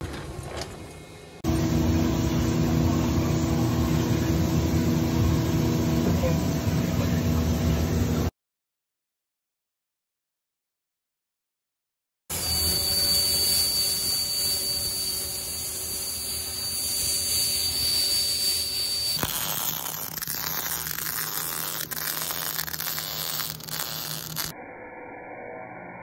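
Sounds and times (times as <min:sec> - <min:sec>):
plasma cutter hiss and whistle: 0:12.3 - 0:24.6
welding crackle and sputter: 0:12.3 - 0:24.6
sharp welding pops: 0:19.2 - 0:24.5.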